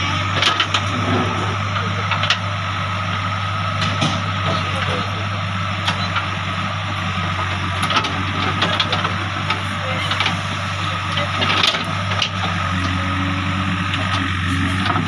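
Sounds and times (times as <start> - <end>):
steady high whine: 0.0 - 11.6
diesel engine running: 0.0 - 15.0.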